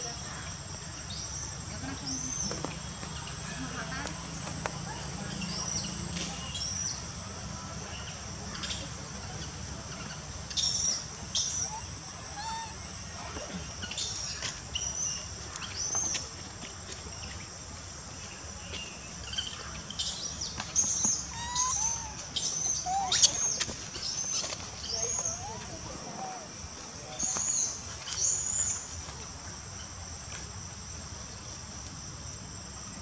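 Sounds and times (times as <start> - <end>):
insect drone: 0.0 - 33.0
high-pitched chirping calls: 20.8 - 25.8.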